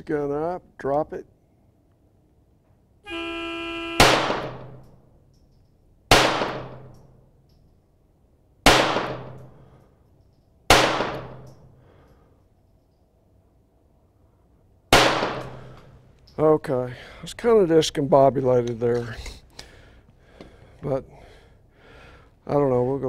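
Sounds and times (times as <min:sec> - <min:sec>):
pistol shots: 0:04.0 - 0:04.8, 0:06.1 - 0:07.2, 0:08.6 - 0:09.6, 0:10.7 - 0:11.7, 0:14.9 - 0:15.8.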